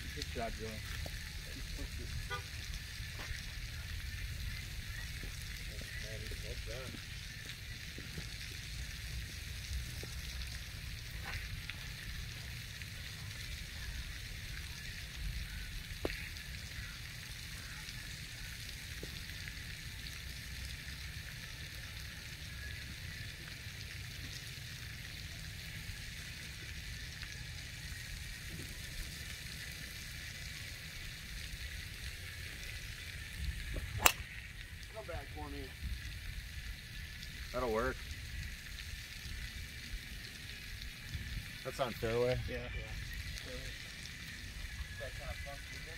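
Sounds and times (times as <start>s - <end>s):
wind rumbling on microphone: 32.6s - 35.0s.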